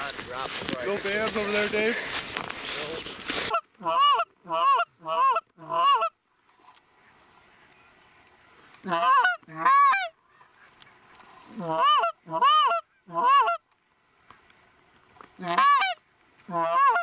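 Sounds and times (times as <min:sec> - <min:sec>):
goose call honks: 0:03.4 - 0:06.2, 0:08.8 - 0:10.8, 0:11.5 - 0:13.6, 0:15.4 - 0:17.0.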